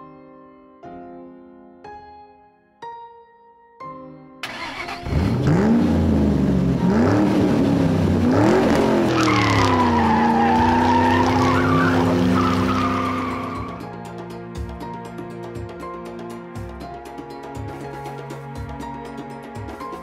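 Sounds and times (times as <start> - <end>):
race car engine revving: 4.5 - 13.8
tyre screech: 9.0 - 13.9.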